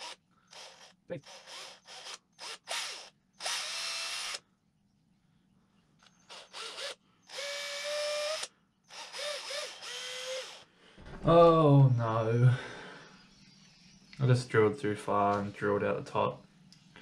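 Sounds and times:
cordless drill motor whine: 0.0 - 4.4, 6.0 - 10.7.

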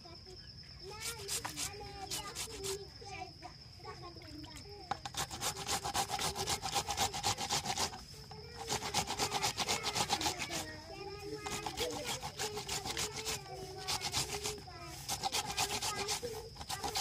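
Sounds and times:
voices talking: 0.0 - 5.1, 6.3 - 17.0
rapid scraping strokes: 0.9 - 2.8, 5.0 - 10.8, 11.4 - 17.0.

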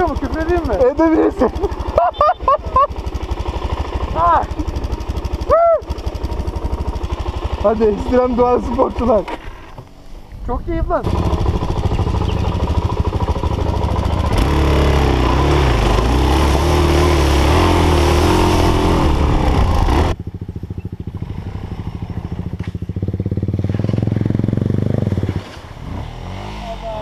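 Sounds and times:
motorcycle engine: 0.0 - 27.0
second motorcycle engine: 0.0 - 27.0
water splashing: 25.1 - 25.9.

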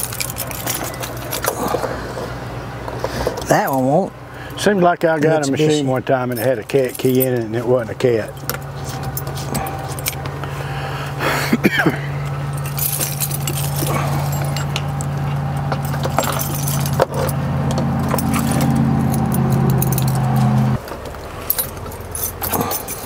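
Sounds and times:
keys jangling and clinking: 0.0 - 2.0, 8.3 - 10.3, 12.2 - 20.7, 21.4 - 23.0
steady low hum: 6.2 - 20.9.

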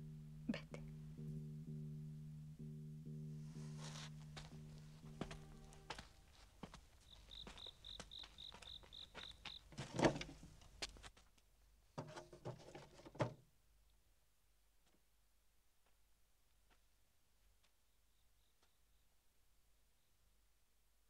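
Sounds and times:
cricket chirping: 7.0 - 10.3, 17.8 - 20.4.

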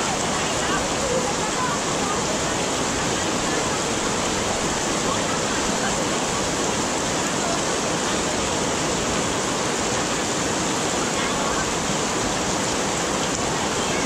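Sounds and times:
heavy rain falling: 0.0 - 14.0.

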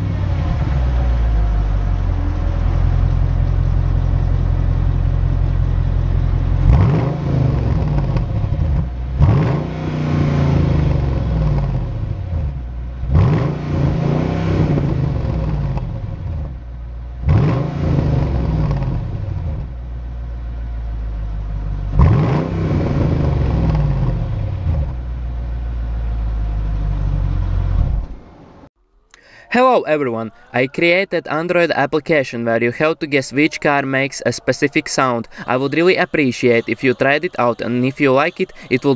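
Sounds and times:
car engine idling and revving: 0.0 - 28.7.

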